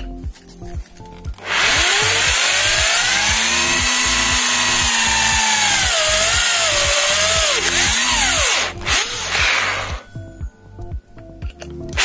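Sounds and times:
electric drill motor whining: 1.4 - 10.1.

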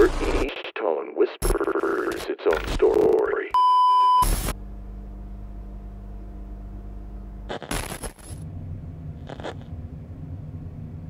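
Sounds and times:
burst of static: 0.0 - 3.5, 4.2 - 4.6, 7.5 - 8.3, 9.2 - 9.7
low room hum: 4.3 - 11.0
low uneven rumble: 8.2 - 11.0.

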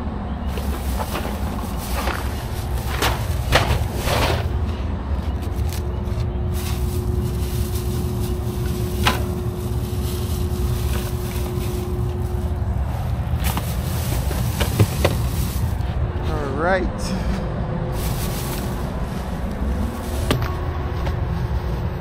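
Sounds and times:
vehicle engine idling: 0.0 - 22.0
thin steady hum: 4.4 - 22.0.

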